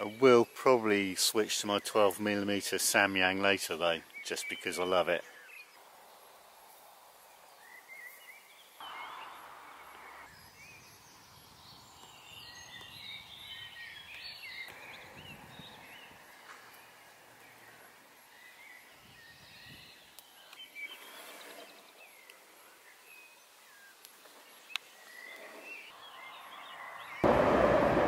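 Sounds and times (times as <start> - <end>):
birds chirping and warbling: 0.0 - 6.3, 7.2 - 27.3
low outdoor hiss: 0.0 - 28.0
brief rush of noise: 27.2 - 28.0.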